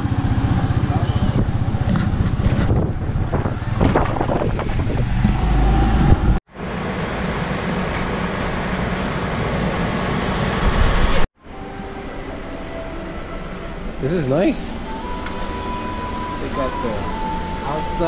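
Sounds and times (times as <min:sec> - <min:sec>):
steady rumble: 0:00.0 - 0:09.1
wind and road noise: 0:00.0 - 0:11.3.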